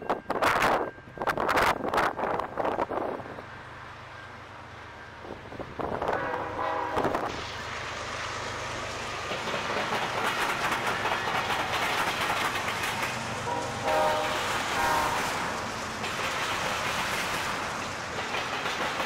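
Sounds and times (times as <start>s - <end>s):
train wheels clattering on rails: 5.8s - 19.0s
train horn blast: 6.1s - 7.3s, 13.4s - 15.5s.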